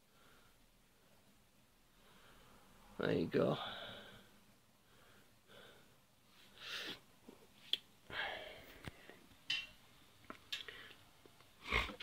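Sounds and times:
soft breathing: 0:00.0 - 0:07.5, 0:08.1 - 0:09.3, 0:10.6 - 0:11.2.

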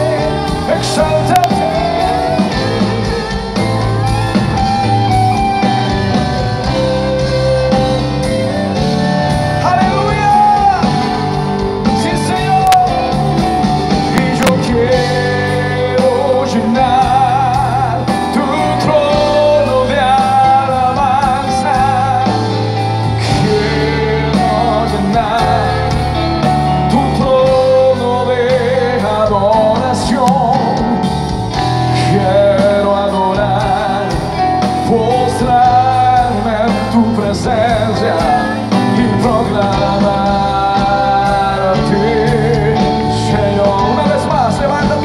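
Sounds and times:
live band playing: 0:00.0 - 0:45.0
man singing with vibrato: 0:00.0 - 0:45.0.

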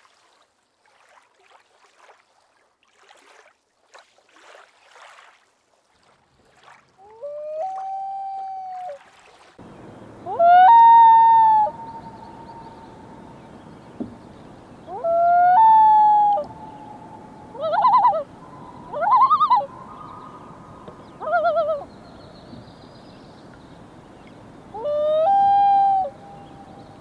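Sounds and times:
loons calling: 0:07.0 - 0:09.0, 0:09.6 - 0:22.8, 0:24.2 - 0:27.0.

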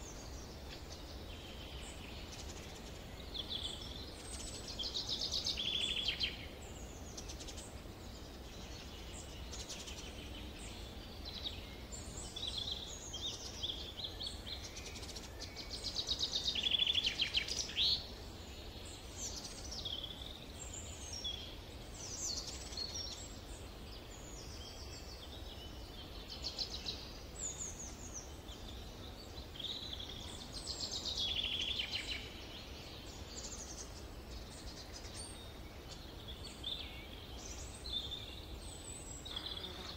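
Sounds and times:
songbirds singing and calling: 0:00.0 - 0:39.9.

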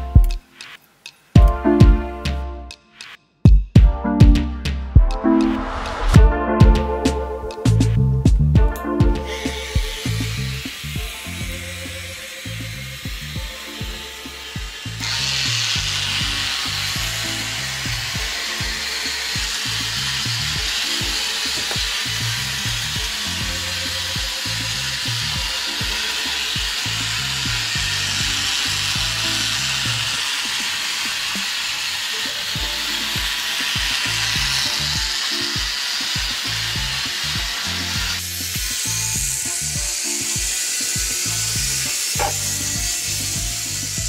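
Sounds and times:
background music with bass line: 0:00.0 - 0:00.8, 0:01.4 - 0:30.3, 0:32.6 - 0:44.0
toy train motors whirring: 0:09.3 - 0:44.0.

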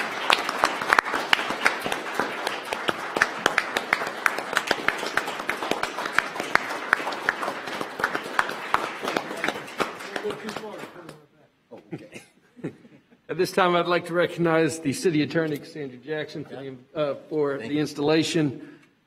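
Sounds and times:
audience applause: 0:00.0 - 0:11.2.

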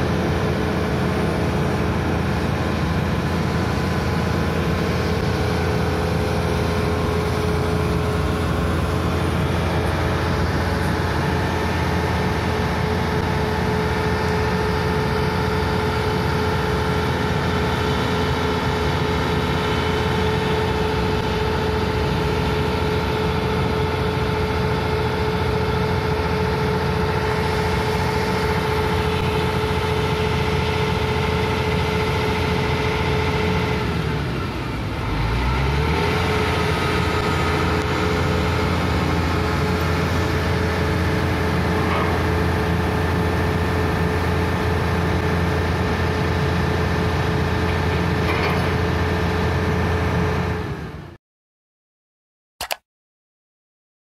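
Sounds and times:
constant whine: 0:00.0 - 0:35.4
excavator diesel engine running: 0:00.0 - 0:51.2.

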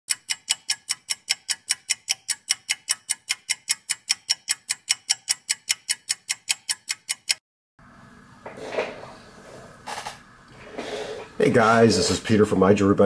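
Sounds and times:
mechanical watch ticking: 0:00.1 - 0:07.4.

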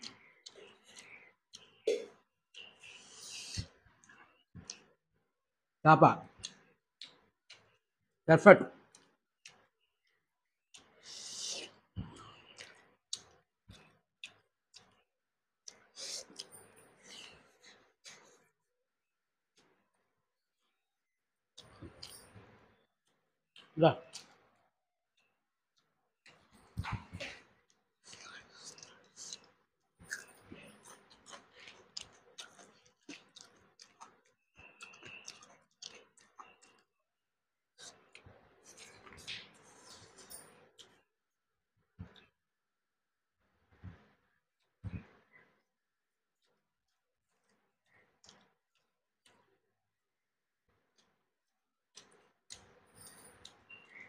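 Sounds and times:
wet chewing and lip-smacking: 0:00.0 - 0:05.0, 0:06.3 - 0:07.8, 0:10.7 - 0:18.5, 0:25.2 - 0:36.9, 0:37.8 - 0:41.0, 0:46.4 - 0:49.5, 0:50.8 - 0:51.2, 0:51.9 - 0:52.8
fingers mixing rice with curry: 0:25.2 - 0:37.0.

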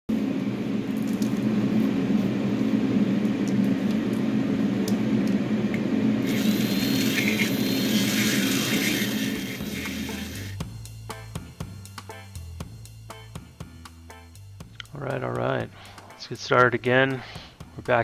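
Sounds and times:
low motor hum: 0:00.1 - 0:10.9.

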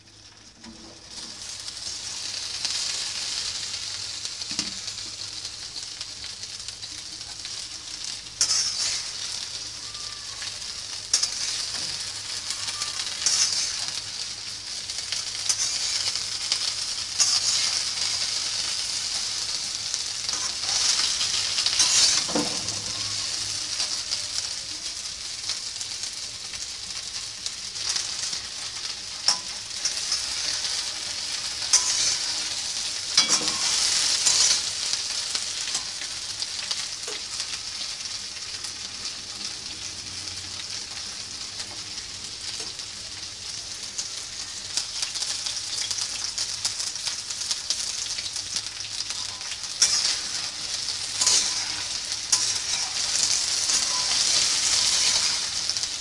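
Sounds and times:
okra sizzling in hot oil: 0:00.0 - 0:56.0
spatula scraping: 0:08.4 - 0:09.3, 0:11.1 - 0:14.0, 0:15.4 - 0:16.2, 0:17.2 - 0:18.2, 0:20.3 - 0:23.2, 0:29.3 - 0:34.7, 0:49.2 - 0:55.8.

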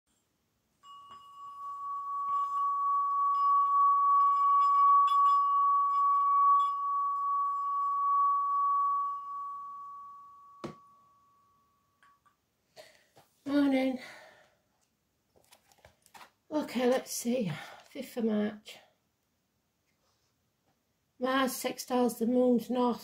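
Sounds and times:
singing bowl ringing tone: 0:00.8 - 0:12.2.

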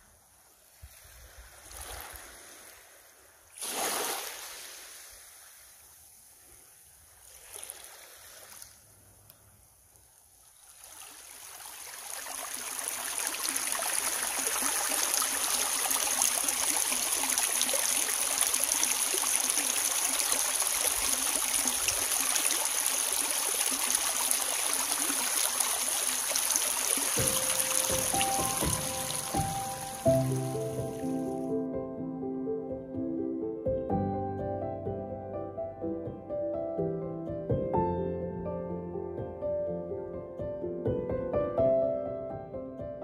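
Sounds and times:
stream running over pebbles: 0:00.0 - 0:31.4
small waves on pebble shore: 0:00.3 - 0:09.1, 0:10.1 - 0:31.3.

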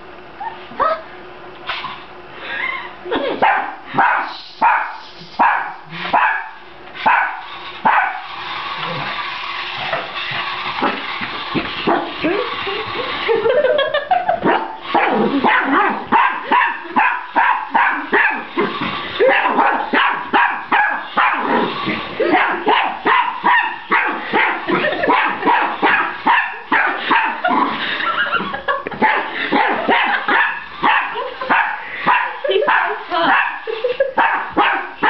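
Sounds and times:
small dog barking: 0:03.4 - 0:08.2, 0:14.4 - 0:18.5, 0:19.2 - 0:21.6, 0:22.3 - 0:27.5, 0:29.0 - 0:33.6, 0:34.2 - 0:35.0.

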